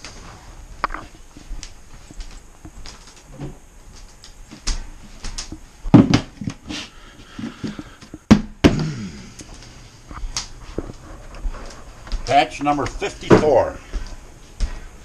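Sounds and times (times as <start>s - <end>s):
plastic lid knocks and thumps: 5.9s - 6.4s.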